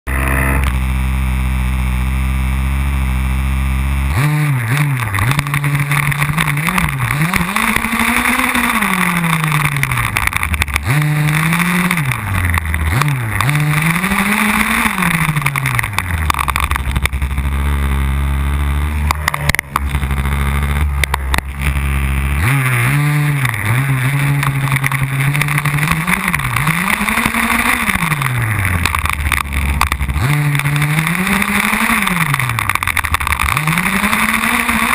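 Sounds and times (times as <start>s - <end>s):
small gasoline engine revving: 0.1s - 34.9s.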